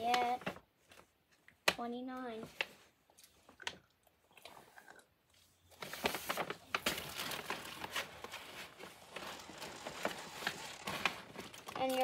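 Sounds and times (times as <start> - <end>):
paper bag crinkling and rustling: 5.8 - 12.0
sharp crackles: 9.2 - 12.0.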